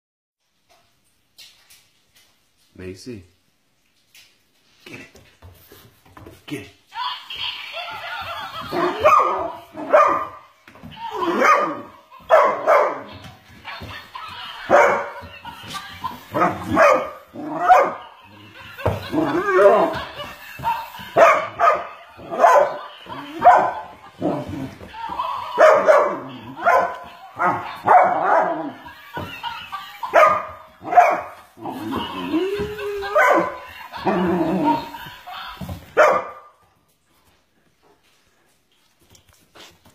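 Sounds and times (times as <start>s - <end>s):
dog barking: 8.8s - 10.4s, 11.3s - 13.1s, 14.7s - 15.2s, 16.4s - 18.0s, 21.2s - 23.8s, 25.6s - 28.5s, 30.1s - 31.4s, 36.0s - 36.5s.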